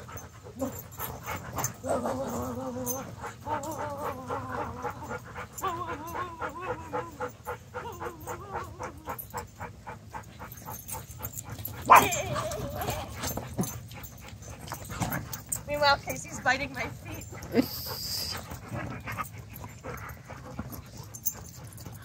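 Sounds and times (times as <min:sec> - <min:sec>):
dog whining: 0:01.8 - 0:09.6, 0:11.7 - 0:13.8, 0:17.4 - 0:19.1.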